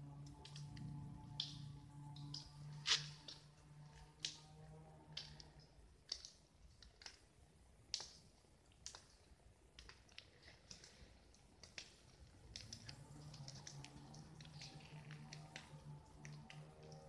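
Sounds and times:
faint music: 0:00.0 - 0:07.5.

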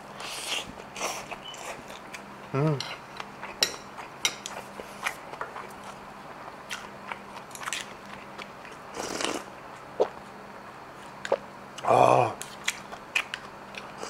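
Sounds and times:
person chewing food: 0:02.8 - 0:10.2, 0:12.3 - 0:14.0.

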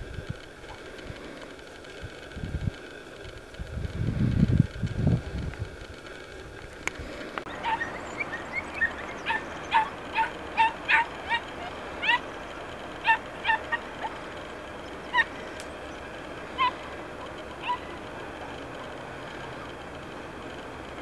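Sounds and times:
puppies yelping: 0:07.5 - 0:21.0.

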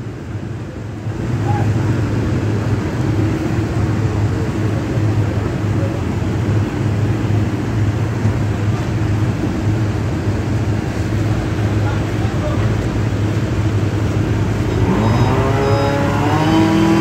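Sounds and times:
large engine running: 0:00.0 - 0:17.0.

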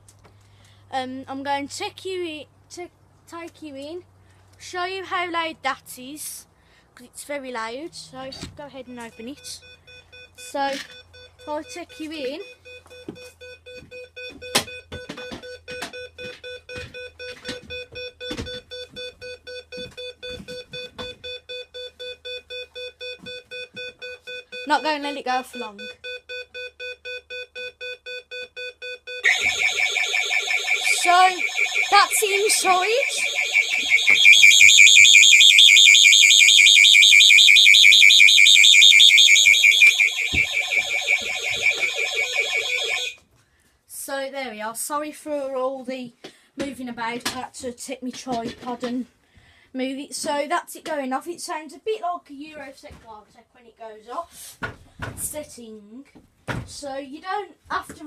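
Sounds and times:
alarm keypad beeping rapidly: 0:24.3 - 0:43.2.

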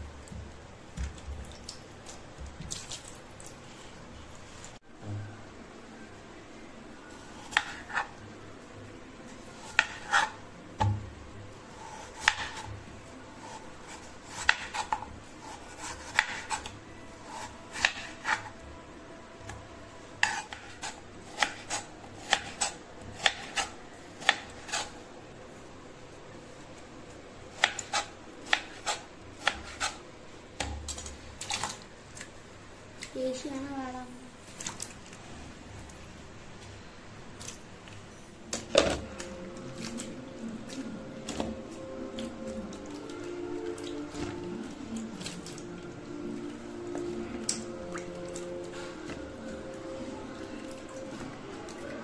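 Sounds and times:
knife chopping on wooden board: 0:09.6 - 0:11.0, 0:12.0 - 0:12.7, 0:13.9 - 0:16.7, 0:17.3 - 0:18.5, 0:20.2 - 0:24.9.

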